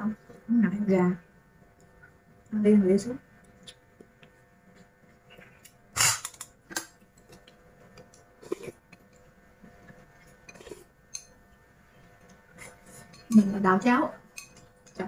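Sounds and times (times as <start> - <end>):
person slurping and sucking: 8.4 - 8.8, 10.5 - 10.9.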